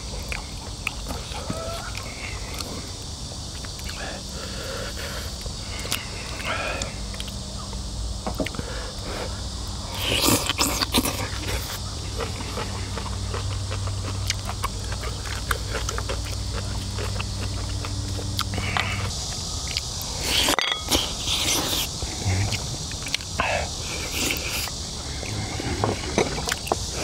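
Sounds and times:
person chewing food: 0:00.0 - 0:07.5, 0:08.4 - 0:27.0
high insect buzz: 0:00.0 - 0:27.0
low hum: 0:11.2 - 0:27.0.

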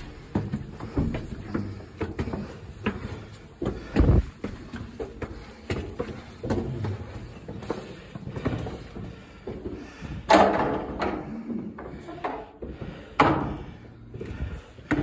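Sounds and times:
footsteps on stone: 0:00.0 - 0:10.1.

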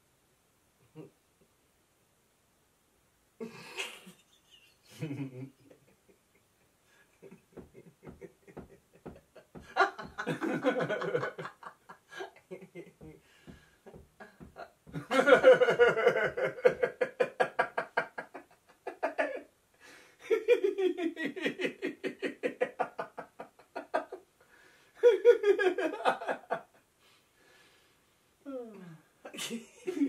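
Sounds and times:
man and woman laughing: 0:03.4 - 0:19.4, 0:20.2 - 0:24.2, 0:25.0 - 0:26.8, 0:29.3 - 0:30.0.

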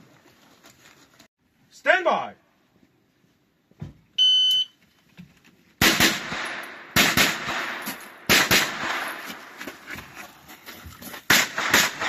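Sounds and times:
high shot timer beep: 0:04.2 - 0:04.7
gunshots echoing: 0:05.8 - 0:09.6, 0:11.3 - 0:12.0.

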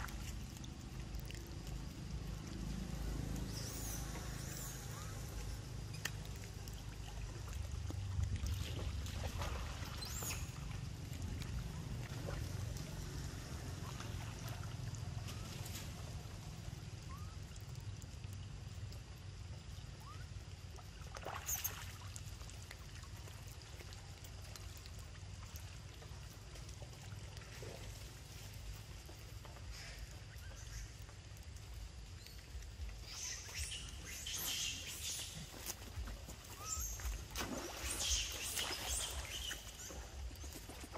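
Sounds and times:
steady low rumble: 0:00.0 - 0:20.7
water splashing faintly: 0:00.0 - 0:40.9.

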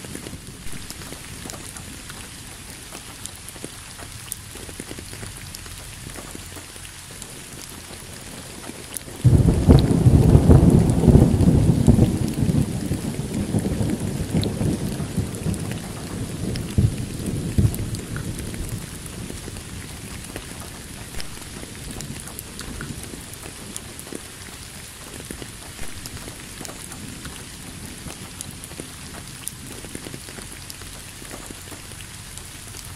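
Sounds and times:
rain hissing: 0:00.0 - 0:32.9
thunder rolling: 0:09.2 - 0:24.1.

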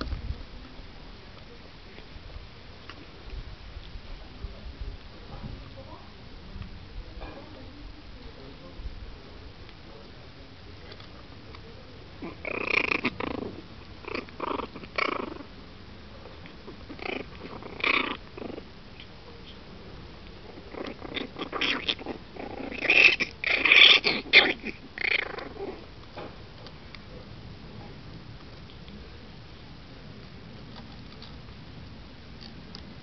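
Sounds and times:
puppies play-growling: 0:12.1 - 0:15.6, 0:16.2 - 0:19.2, 0:20.2 - 0:26.3.

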